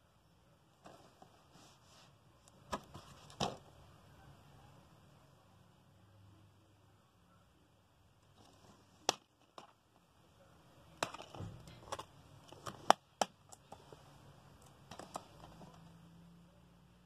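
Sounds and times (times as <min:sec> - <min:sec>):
plastic case clicks and snaps: 0:11.0 - 0:13.7.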